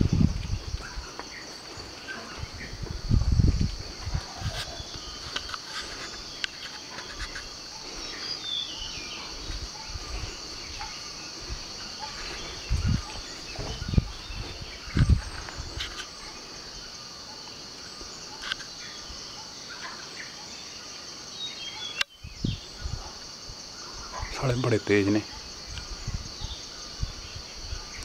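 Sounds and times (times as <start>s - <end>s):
insects droning: 0.0s - 28.0s
low thumps near microphone: 2.4s - 4.5s, 12.4s - 15.4s
bird chirp: 4.0s - 28.0s.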